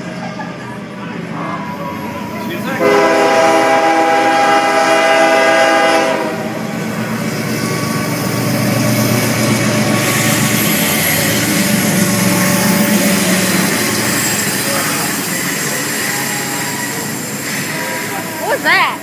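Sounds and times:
locomotive rumbling past: 0.0s - 19.0s
locomotive horn blast: 2.8s - 6.6s.

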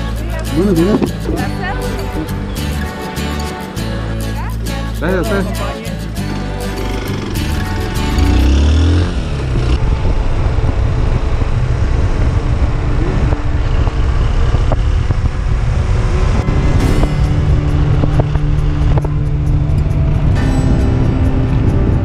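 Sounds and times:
motorcycle engine cruising: 0.0s - 22.0s
wind noise on microphone: 7.2s - 22.0s.

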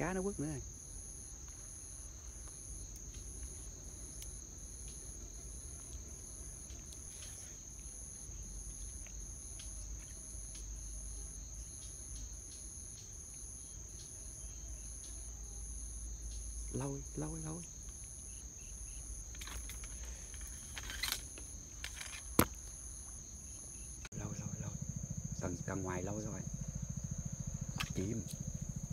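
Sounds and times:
insect high trill: 0.0s - 28.9s
pulsing higher insect chirp: 0.0s - 28.9s.

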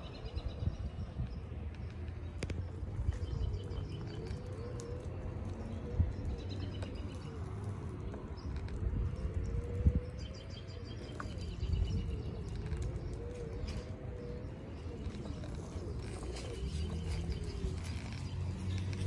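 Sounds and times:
wheels rumbling on concrete: 0.0s - 19.0s.

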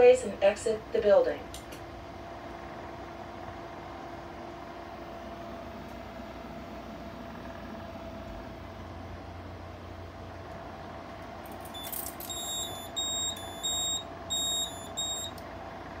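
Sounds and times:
electrical hum: 0.0s - 16.0s
alarm panel beeping: 11.7s - 15.4s.

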